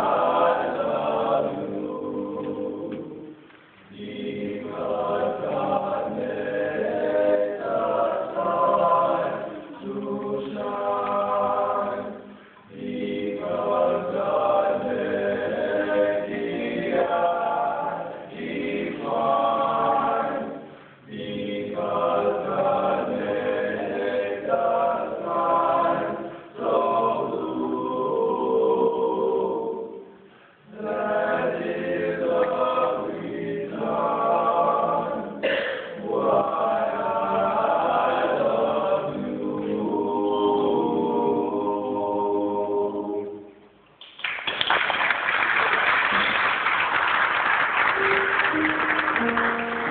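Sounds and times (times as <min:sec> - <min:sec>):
choir singing: 0:00.0 - 0:43.6, 0:48.0 - 0:49.9.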